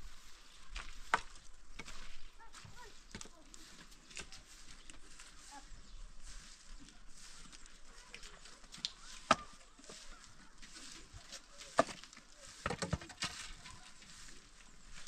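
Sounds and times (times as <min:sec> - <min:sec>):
wooden sticks knocking together: 0:11.7 - 0:13.6.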